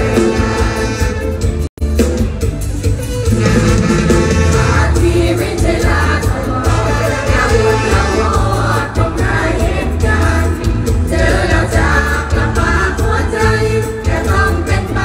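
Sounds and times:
booming bass beat: 0.0s - 15.0s.

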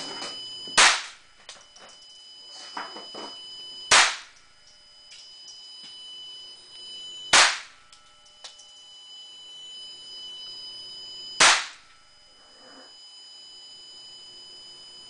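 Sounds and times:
pistol shots: 0.8s - 1.2s, 3.9s - 4.3s, 7.3s - 7.8s, 11.4s - 11.8s.

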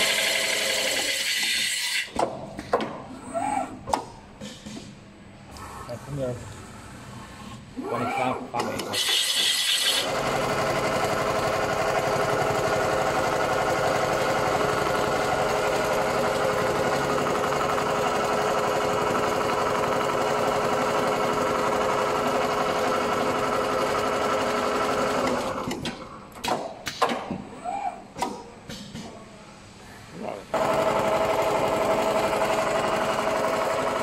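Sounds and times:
sewing machine stitching: 8.6s - 25.7s, 30.6s - 34.0s
scattered clicks and knocks: 25.3s - 27.4s.

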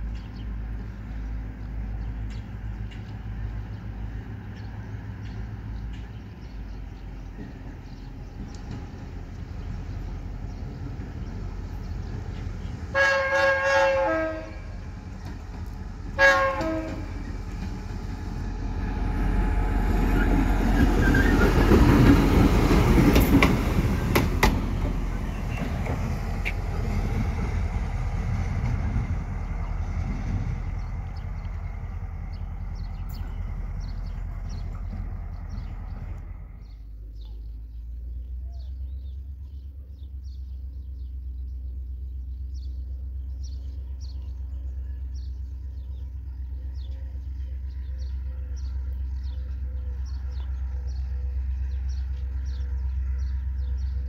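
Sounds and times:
diesel locomotive engine: 0.0s - 54.0s
locomotive horn blasts: 12.9s - 14.8s, 16.2s - 17.3s.

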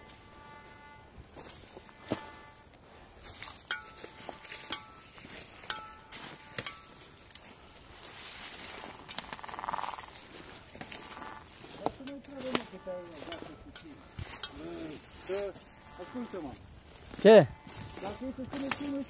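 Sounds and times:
metal detector beeps: 0.0s - 2.7s, 3.6s - 7.8s, 10.8s - 16.6s, 17.4s - 19.0s
footsteps on dry leaves: 0.0s - 19.0s.

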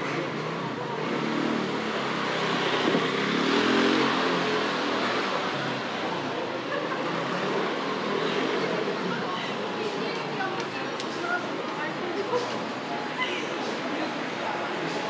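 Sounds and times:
vehicle engine revving: 0.0s - 9.1s
street noise: 0.0s - 15.0s.

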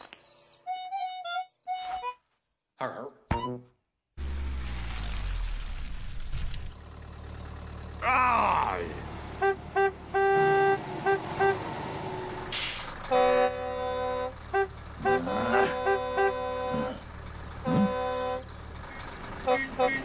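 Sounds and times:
truck horn honking: 9.0s - 20.0s.

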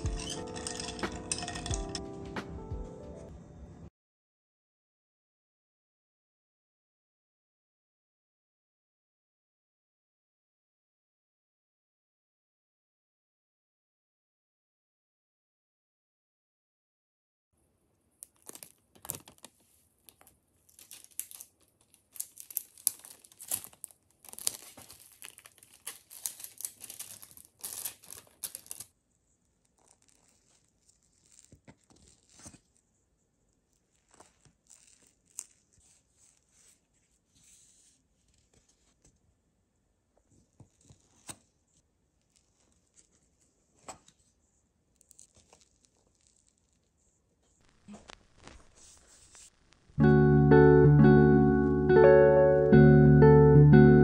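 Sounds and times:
plastic film crinkling: 18.2s - 29.0s, 29.6s - 32.8s, 33.7s - 36.8s, 45.0s - 46.9s, 47.6s - 49.9s.

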